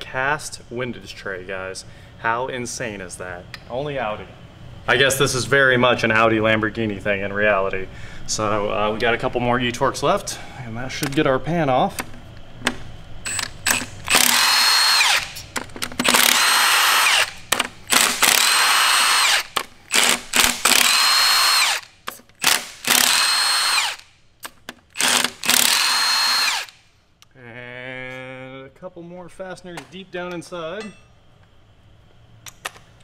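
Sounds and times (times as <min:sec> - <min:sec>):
impact wrench hammering: 0:13.3 - 0:26.7.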